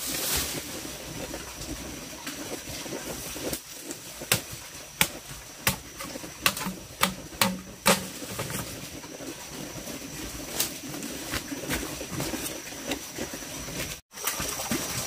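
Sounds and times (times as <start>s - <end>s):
sharp knocks: 5.0s - 8.5s.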